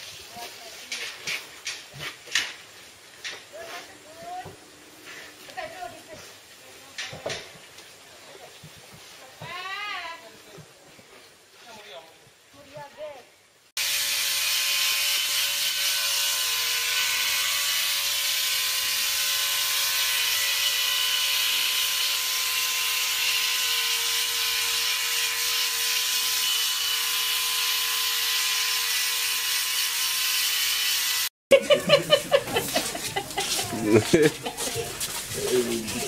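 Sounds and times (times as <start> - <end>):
electric shaver buzzing: 13.8 - 31.3.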